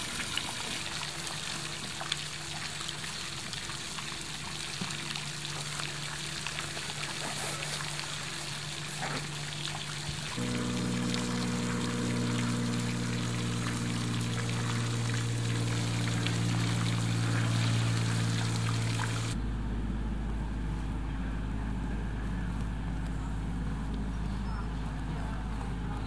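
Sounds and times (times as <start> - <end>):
fountain water trickling and splashing: 0.0 - 19.4
steady low hum: 9.3 - 26.0
steady low rumble: 10.4 - 26.0.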